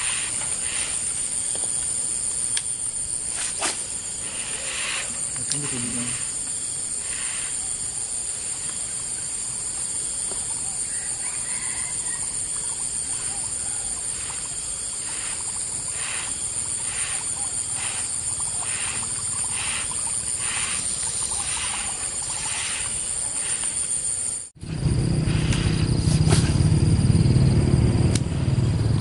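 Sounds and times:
high-pitched insect drone: 0:00.0 - 0:28.1
animal calling: 0:13.1 - 0:23.6.

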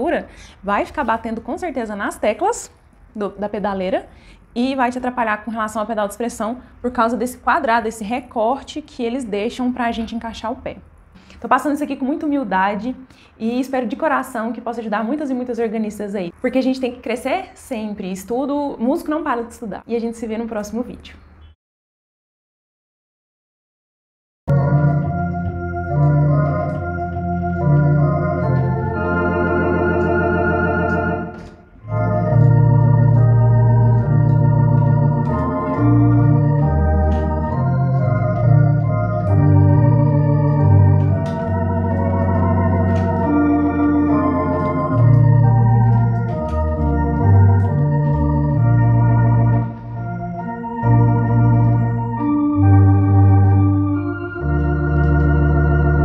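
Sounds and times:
deep organ pedal bass notes: 0:24.5 - 0:56.0
electronic organ chords: 0:24.5 - 0:56.0.

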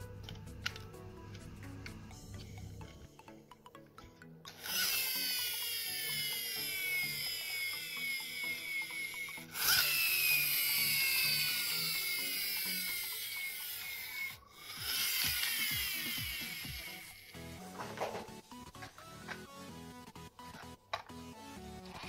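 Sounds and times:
background music: 0:00.0 - 0:22.0
toy car friction motor whining: 0:04.4 - 0:22.0.

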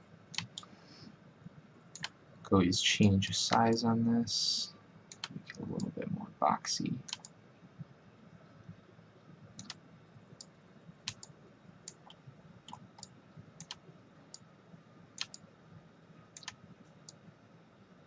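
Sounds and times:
faint steady hum: 0:00.0 - 0:18.0
computer mouse clicking: 0:00.3 - 0:00.7, 0:01.9 - 0:02.2, 0:05.1 - 0:05.9, 0:07.1 - 0:07.4, 0:09.6 - 0:09.8, 0:11.1 - 0:11.3, 0:11.9 - 0:14.4, 0:15.2 - 0:15.4, 0:16.4 - 0:17.2.

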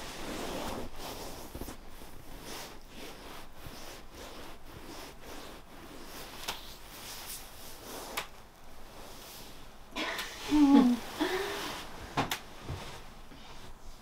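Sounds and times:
soft rubbing and rustling: 0:00.0 - 0:14.0.

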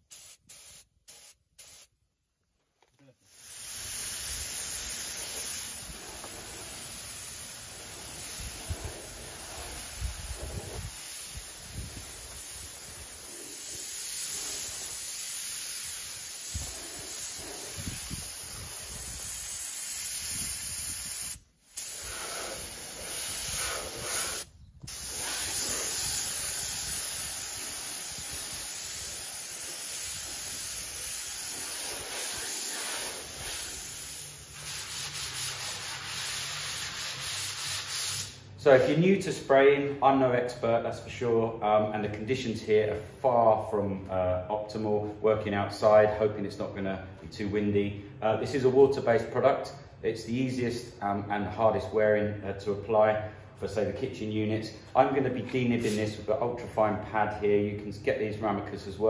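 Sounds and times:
paint spray gun hissing: 0:00.0 - 0:01.9, 0:03.2 - 0:38.4, 0:55.8 - 0:56.2.

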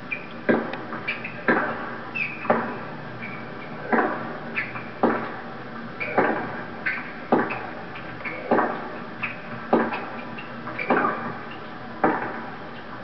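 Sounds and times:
shoe squeaks and ticks: 0:02.2 - 0:02.6, 0:09.2 - 0:09.5.

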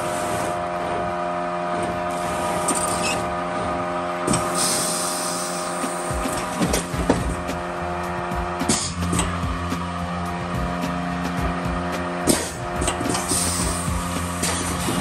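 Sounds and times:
packaging machine hum: 0:00.0 - 0:15.0
air hisses: 0:04.3 - 0:06.4, 0:12.3 - 0:15.0.

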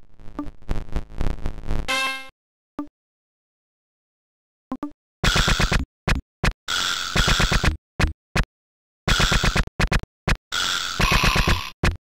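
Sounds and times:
stuttering tracker music beat: 0:05.3 - 0:06.6, 0:07.2 - 0:08.2, 0:09.1 - 0:10.4, 0:11.0 - 0:12.0.

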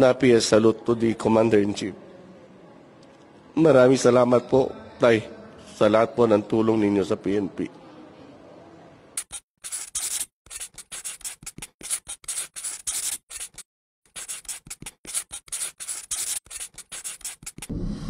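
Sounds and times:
scratchy rubbing or scraping: 0:09.2 - 0:17.7.

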